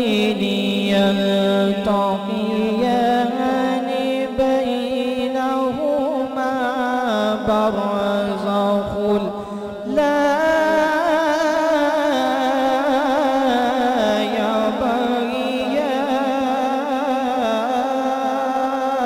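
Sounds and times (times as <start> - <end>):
man reciting melodically: 0.0 - 19.0
breath: 9.4 - 9.9.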